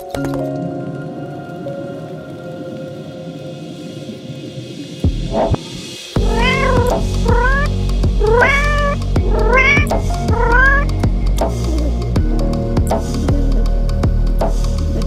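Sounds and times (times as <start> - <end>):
background music: 0.0 - 15.0
cat meowing: 6.2 - 10.9.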